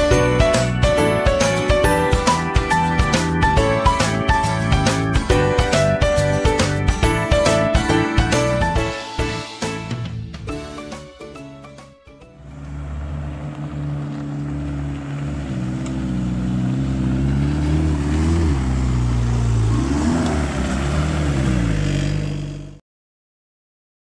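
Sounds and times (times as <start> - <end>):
diesel van engine driving past: 12.2 - 22.8.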